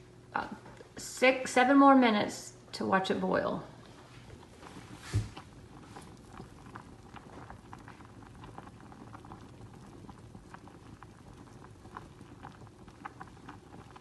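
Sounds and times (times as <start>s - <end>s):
pasta water bubbling: 3.7s - 14.0s.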